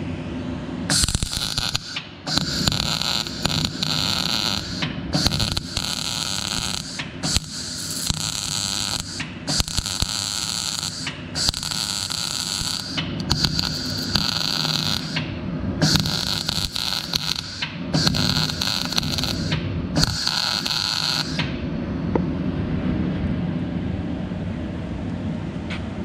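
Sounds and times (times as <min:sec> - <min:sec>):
welder arc crackling: 0:00.9 - 0:21.6.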